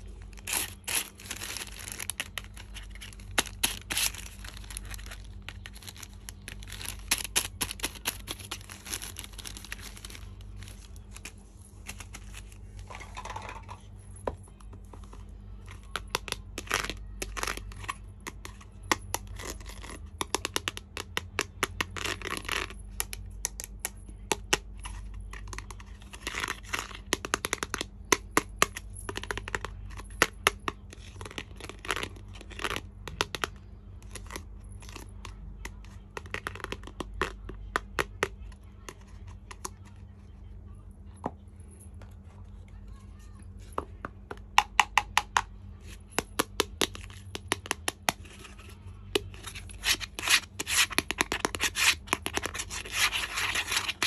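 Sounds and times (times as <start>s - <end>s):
packaging crinkling and tearing: 0.2s - 12.7s.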